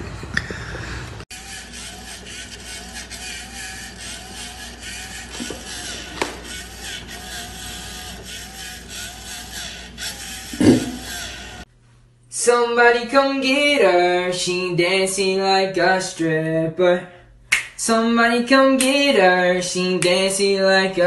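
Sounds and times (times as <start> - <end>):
spinning toy whirring: 1.3 - 11.7.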